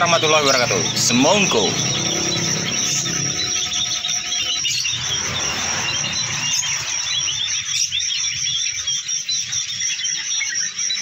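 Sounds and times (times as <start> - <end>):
high-pitched drone: 0.0 - 8.8
songbird twittering: 0.0 - 11.0.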